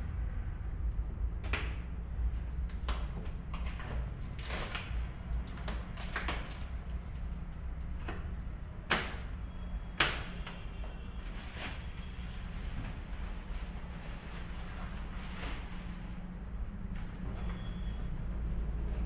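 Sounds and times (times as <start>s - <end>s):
low hum: 0.0s - 2.7s
plastic film crinkling: 11.0s - 16.6s.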